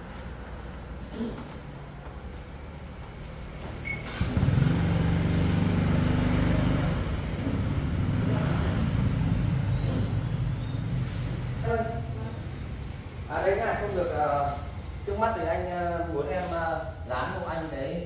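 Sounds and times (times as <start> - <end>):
motorcycle engine running: 4.0 - 11.1.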